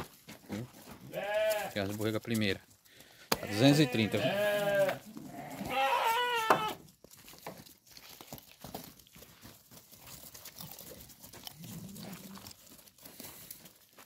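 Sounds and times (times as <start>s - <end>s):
hooves trotting on dirt: 0.0s - 14.0s
sheep bleating: 1.0s - 1.8s, 3.3s - 6.8s.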